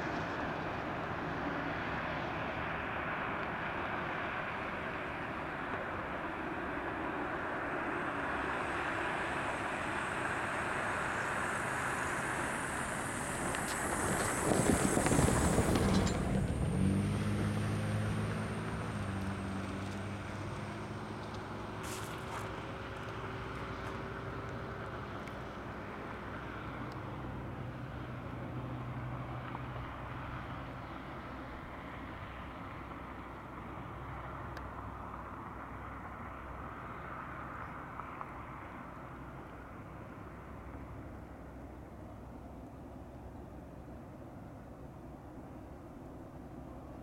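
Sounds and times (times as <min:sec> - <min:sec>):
low drone: 0:04.5 - 0:28.6
train wheels rumbling on track: 0:10.6 - 0:17.6.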